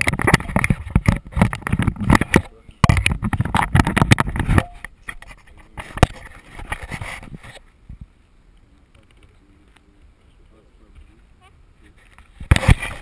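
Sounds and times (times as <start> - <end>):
camera handling scraping and clicks: 0.0 - 7.7.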